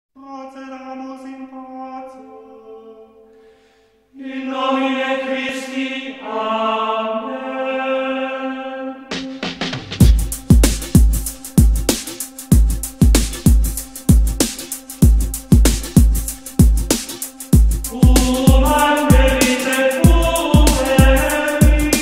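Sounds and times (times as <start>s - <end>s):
voices chanting plainchant: 4.1s - 9.2s, 17.8s - 22.0s
drum beat: 9.1s - 22.0s.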